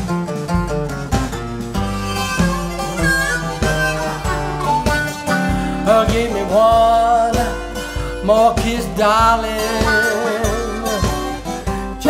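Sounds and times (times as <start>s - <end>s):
twelve-string guitar strumming: 0.0s - 12.0s
harmonica: 1.7s - 12.0s
man singing: 2.9s - 12.0s.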